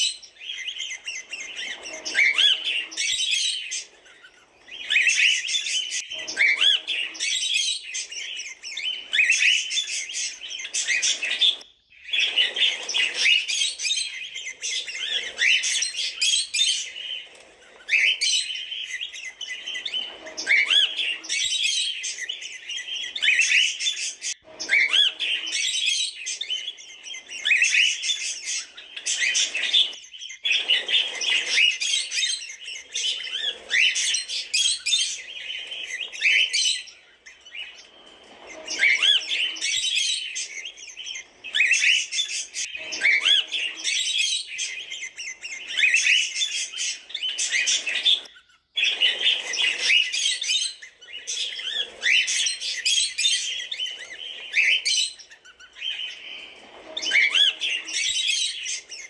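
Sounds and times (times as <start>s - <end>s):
cockatiels chirping: 0.0s - 59.0s.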